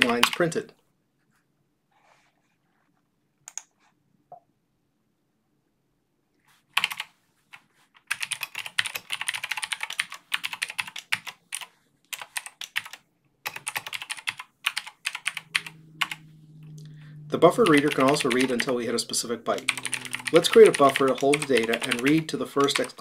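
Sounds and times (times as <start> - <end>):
computer keyboard typing: 0.0 - 0.5, 6.8 - 7.1, 8.0 - 16.2, 17.6 - 18.9, 19.5 - 23.0.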